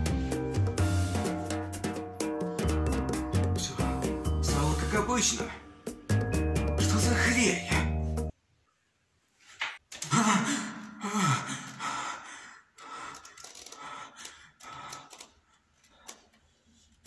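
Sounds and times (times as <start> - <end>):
man groaning: 10.0 - 11.7.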